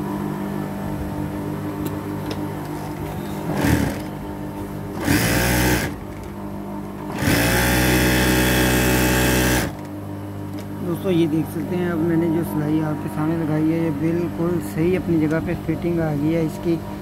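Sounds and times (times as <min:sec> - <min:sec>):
sewing machine motor humming: 0:03.4 - 0:04.1, 0:05.0 - 0:06.0, 0:07.1 - 0:09.8
sewing machine stitching: 0:03.5 - 0:04.1, 0:05.0 - 0:06.0, 0:07.1 - 0:09.8.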